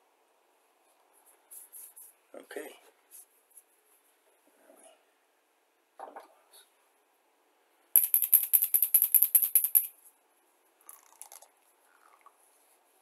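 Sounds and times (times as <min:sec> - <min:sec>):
hard object rattling: 0:08.0 - 0:09.9.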